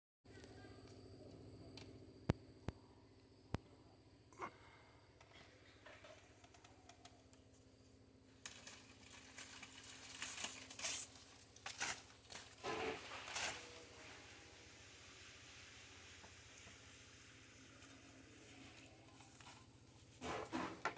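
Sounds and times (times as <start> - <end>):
leaves and bark crackling: 8.3 - 14.3.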